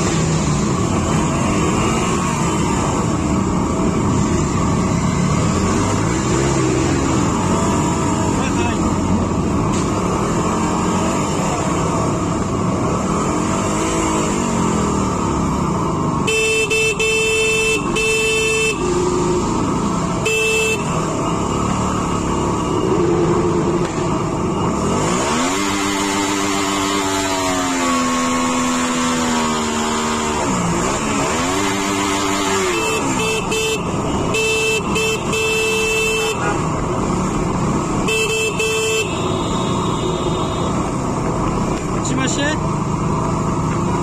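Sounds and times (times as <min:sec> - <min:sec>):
vehicle horn blasts: 0:16.2 - 0:19.0, 0:20.2 - 0:21.1, 0:32.6 - 0:36.7, 0:38.0 - 0:40.9.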